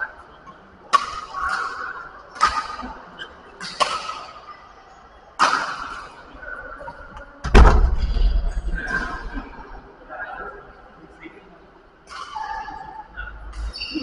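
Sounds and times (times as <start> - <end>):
rackets striking shuttlecock: 2.4 - 2.9.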